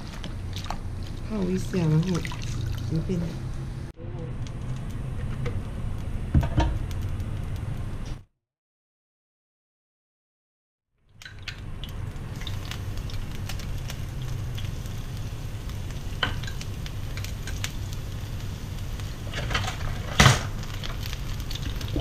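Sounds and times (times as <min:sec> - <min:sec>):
garlic sizzling in oil: 0:11.2 - 0:22.0.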